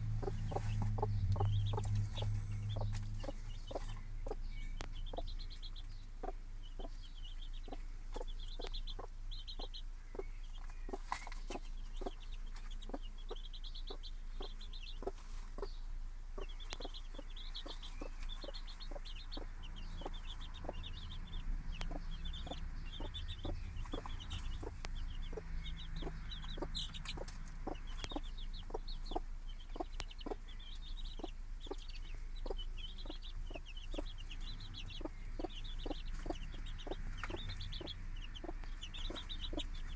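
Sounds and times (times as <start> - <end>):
steady low hum: 0.0 - 10.8
chicks peeping: 0.0 - 39.9
hen clucking softly: 0.2 - 21.0, 21.7 - 39.9.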